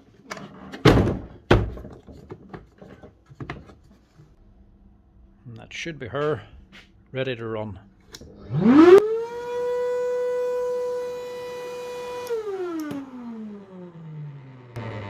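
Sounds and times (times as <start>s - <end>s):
vacuum motor whining: 8.4s - 15.0s.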